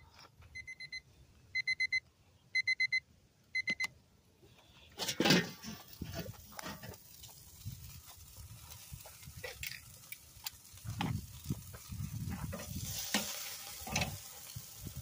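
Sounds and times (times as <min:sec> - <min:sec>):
electronic timer alarm beeping: 0:00.0 - 0:03.9.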